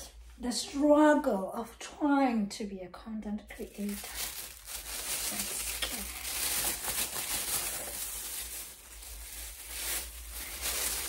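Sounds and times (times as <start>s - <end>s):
plastic glove crinkling: 3.4s - 11.0s.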